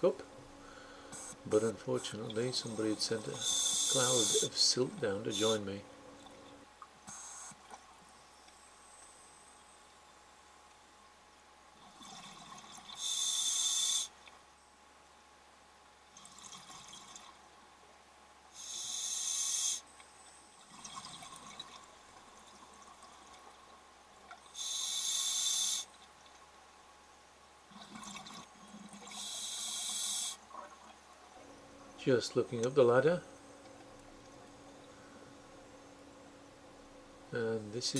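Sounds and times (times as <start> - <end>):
diver inhaling through regulator: 3.3 - 4.5, 24.6 - 25.9.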